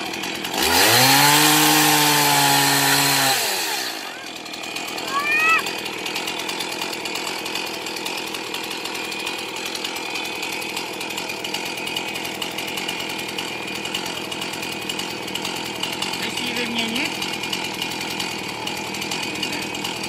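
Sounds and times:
chainsaw idling: 0.0s - 20.0s.

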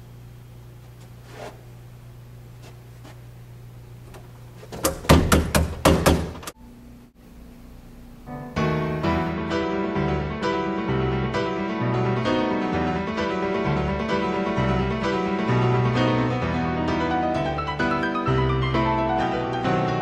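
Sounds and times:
piano music: 8.2s - 20.0s.

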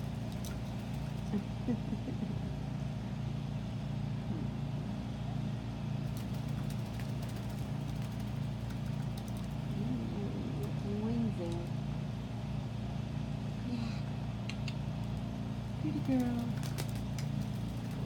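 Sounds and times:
wing flutters: 0.0s - 1.7s, 6.0s - 11.7s, 14.5s - 18.0s
low mechanical hum: 0.0s - 18.0s.

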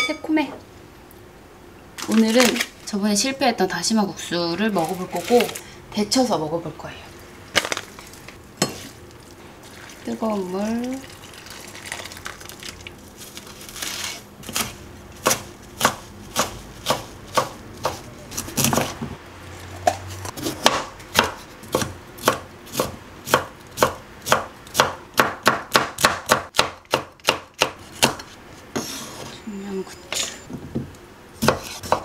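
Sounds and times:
knife chopping on wooden board: 14.5s - 19.1s, 19.8s - 28.9s, 30.8s - 32.0s.

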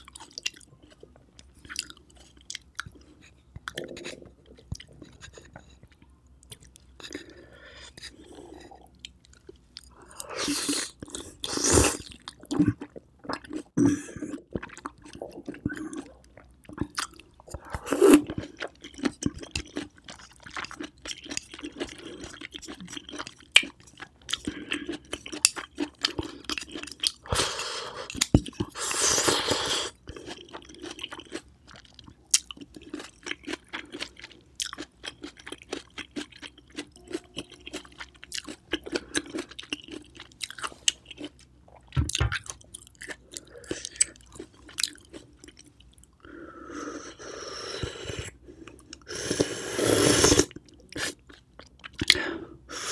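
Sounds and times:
chewing with crisp clicks: 0.0s - 27.3s, 28.0s - 28.8s, 30.0s - 46.2s, 50.5s - 52.2s
wet mouth sounds: 49.0s - 52.3s.

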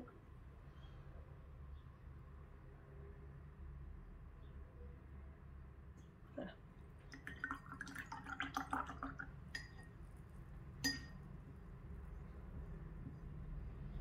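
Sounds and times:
brush clinking against glass: 9.5s - 10.0s, 10.8s - 11.3s.

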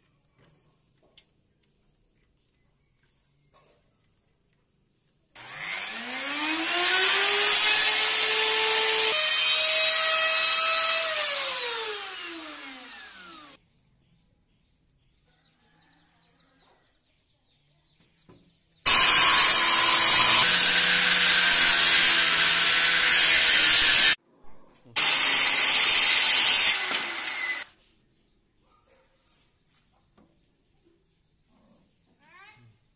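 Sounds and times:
circular saw running: 5.4s - 13.6s, 18.9s - 24.2s, 25.0s - 27.6s
electric router whining: 5.4s - 13.6s, 18.9s - 24.2s, 25.0s - 27.6s.

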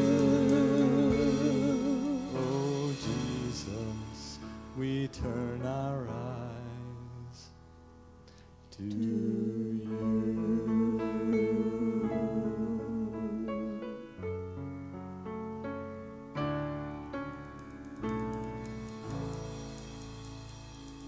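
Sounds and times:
bass and guitar: 0.0s - 5.7s, 13.1s - 21.0s
singers with vibrato: 0.0s - 7.5s, 8.7s - 14.1s.

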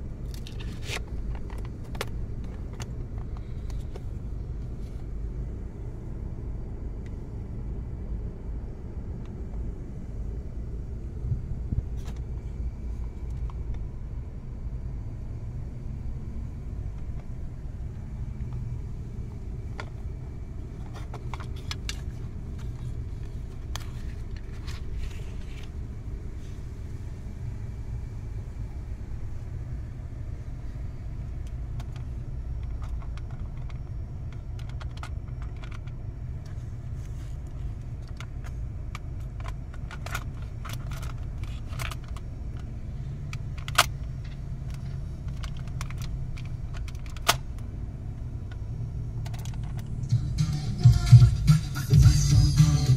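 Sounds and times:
steady low rumble: 0.0s - 52.9s
cassette case clicks and rattles: 0.3s - 4.1s, 31.8s - 36.0s, 38.1s - 42.7s, 43.4s - 47.7s.

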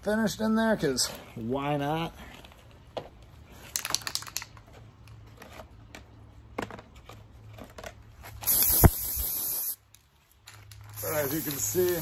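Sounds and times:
aerosol spray hissing: 8.4s - 9.8s, 11.0s - 12.0s.

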